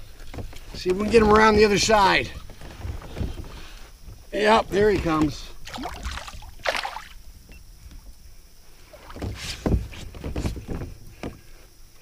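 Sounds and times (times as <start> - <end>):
water splashing against kayak: 0.1 - 7.3.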